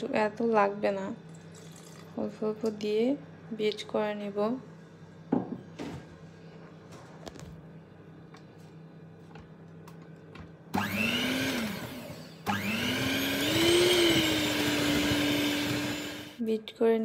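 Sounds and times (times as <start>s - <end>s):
electric hand mixer whining: 10.7s - 16.4s.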